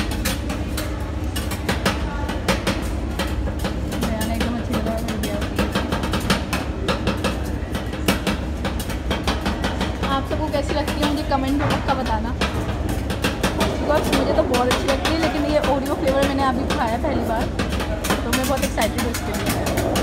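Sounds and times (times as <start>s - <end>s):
metal spatulas chopping on metal plate: 8.2s - 20.0s.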